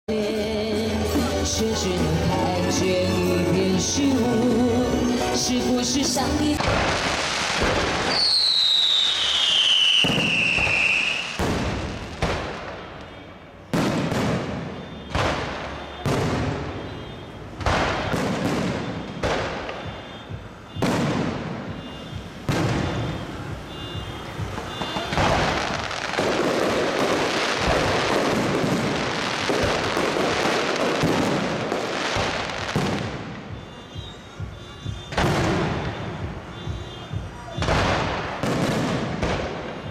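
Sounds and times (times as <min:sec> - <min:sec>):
fireworks crackling: 0:00.9 - 0:39.9
fireworks bangs: 0:05.4 - 0:39.9
falling firework whistle: 0:07.6 - 0:11.6, 0:14.1 - 0:26.2.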